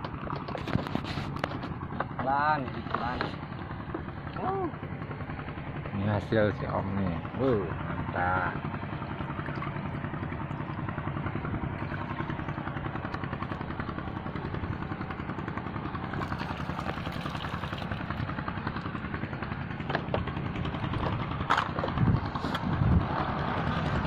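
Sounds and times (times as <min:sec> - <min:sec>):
small engine running: 0:00.0 - 0:24.0.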